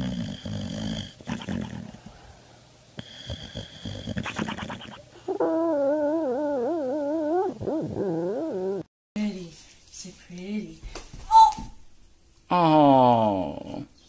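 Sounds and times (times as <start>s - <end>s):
dog snoring with whistle: 0.0s - 2.0s, 3.0s - 8.9s.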